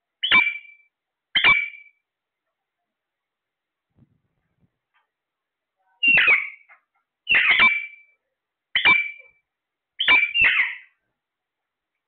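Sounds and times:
parakeets squawking: 0.2 - 0.8, 1.4 - 1.9, 6.0 - 6.7, 7.3 - 8.0, 8.8 - 9.3, 10.0 - 11.0.

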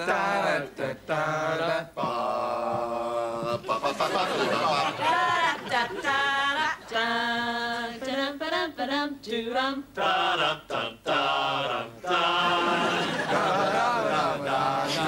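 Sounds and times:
person singing unaccompanied: 0.0 - 15.0.

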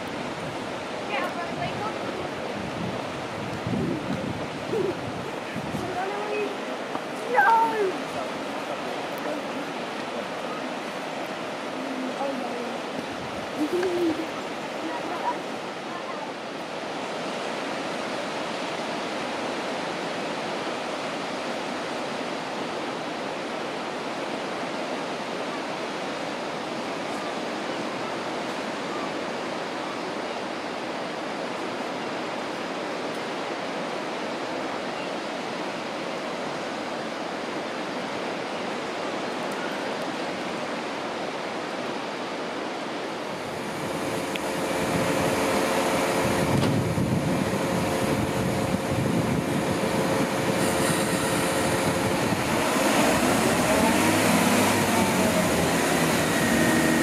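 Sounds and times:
sea waves breaking on beach: 0.0 - 57.0
diesel train engine humming: 43.5 - 57.0.

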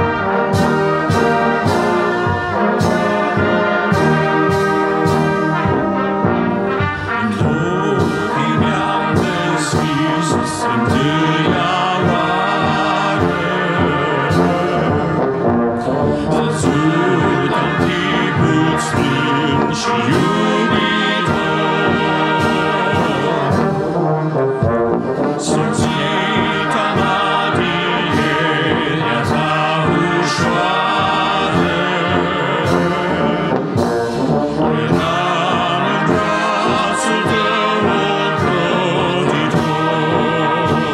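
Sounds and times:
brass band playing a hymn: 0.0 - 40.9.

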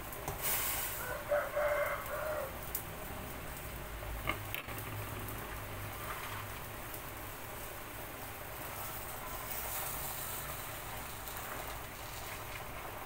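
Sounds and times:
soup bubbling in a pot: 0.0 - 13.0
rooster crowing: 1.0 - 2.7.

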